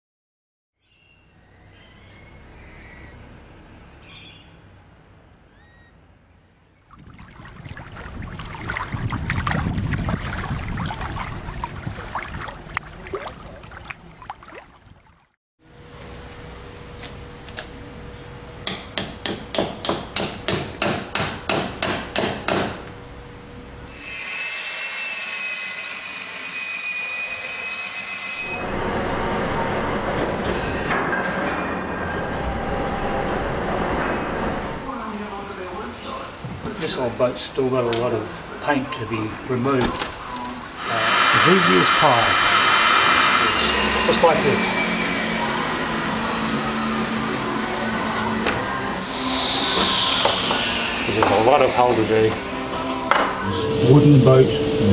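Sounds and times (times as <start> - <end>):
steady machine whine: 40.8 - 54.9.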